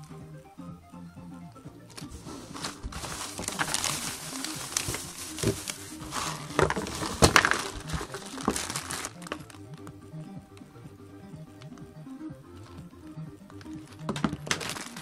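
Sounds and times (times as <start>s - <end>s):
plastic bags rustling: 2.0s - 9.6s, 14.0s - 15.0s.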